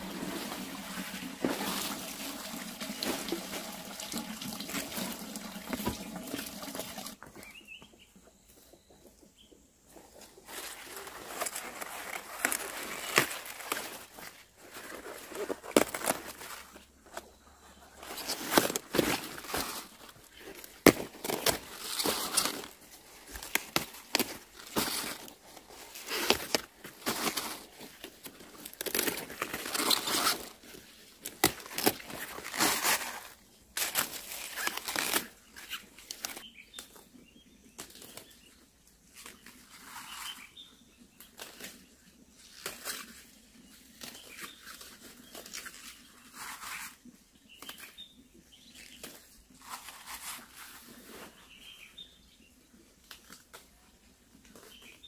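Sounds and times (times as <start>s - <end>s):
leaves rustling and snapping: 10.5s - 17.2s, 18.0s - 37.1s, 37.8s - 40.5s, 41.2s - 47.0s, 53.0s - 55.0s.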